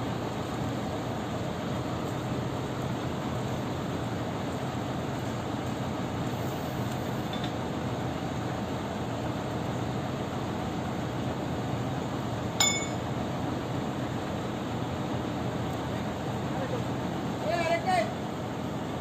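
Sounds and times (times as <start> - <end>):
metal clink: 12.6 - 13.1.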